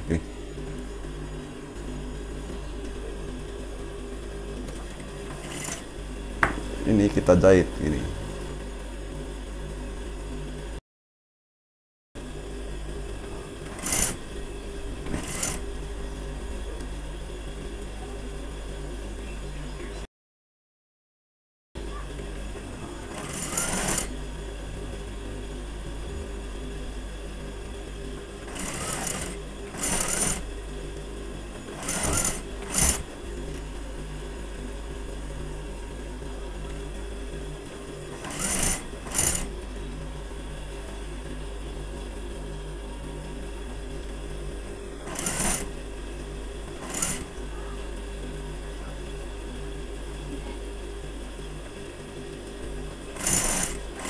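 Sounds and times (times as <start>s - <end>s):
sewing machine motor humming: 0.1s - 8.6s, 13.4s - 16.9s, 22.9s - 25.4s, 26.6s - 34.4s, 36.7s - 40.0s, 44.9s - 48.4s, 52.1s - 54.0s
sewing machine stitching: 4.6s - 6.2s, 13.6s - 14.4s, 15.0s - 15.7s, 23.0s - 24.2s, 28.3s - 30.6s, 31.6s - 33.7s, 38.1s - 39.6s, 45.0s - 45.8s, 46.6s - 47.5s, 53.1s - 54.0s.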